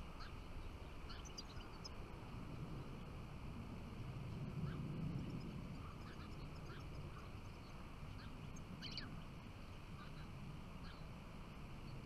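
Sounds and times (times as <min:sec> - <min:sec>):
finches chirping and twittering: 0:00.0 - 0:02.0, 0:04.5 - 0:09.3, 0:10.0 - 0:11.1
low steady background rumble: 0:00.0 - 0:12.0.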